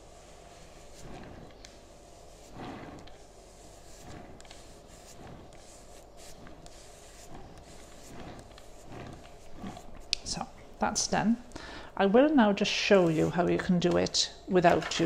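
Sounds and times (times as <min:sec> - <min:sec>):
cloth rubbing on foil: 0:00.0 - 0:11.4.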